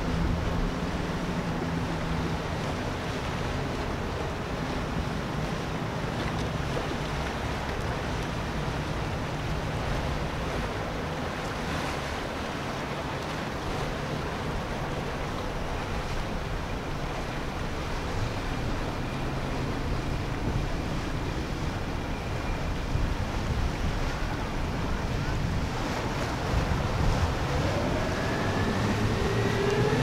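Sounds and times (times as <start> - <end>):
boat engines droning: 0.0 - 30.0
water wash: 0.0 - 30.0
wind noise on microphone: 14.6 - 30.0.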